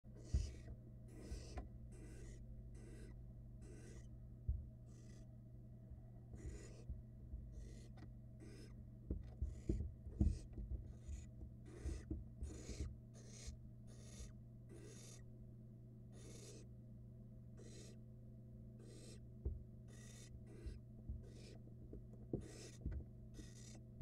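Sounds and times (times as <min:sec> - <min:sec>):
steady low hum: 0:00.1 - 0:24.0
dull thumps: 0:00.2 - 0:01.8, 0:09.0 - 0:13.0, 0:20.6 - 0:23.1
owl nestlings hissing: 0:00.2 - 0:04.1, 0:04.9 - 0:05.2, 0:06.4 - 0:06.9, 0:07.5 - 0:08.8, 0:11.1 - 0:15.2, 0:16.1 - 0:16.7, 0:17.6 - 0:18.0, 0:18.8 - 0:19.2, 0:19.9 - 0:21.6, 0:22.4 - 0:22.8, 0:23.4 - 0:23.8.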